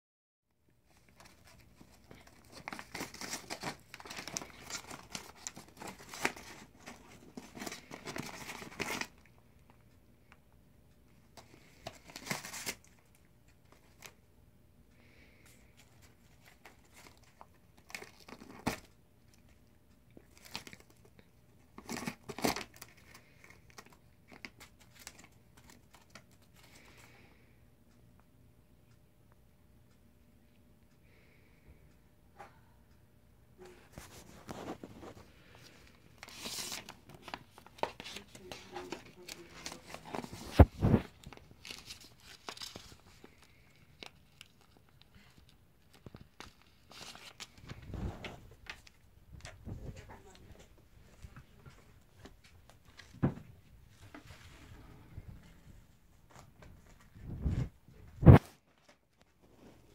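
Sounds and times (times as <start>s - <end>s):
cat tearing paper envelope: 0.9s - 9.3s, 11.7s - 13.0s, 16.0s - 18.9s, 20.2s - 26.4s, 35.8s - 47.9s.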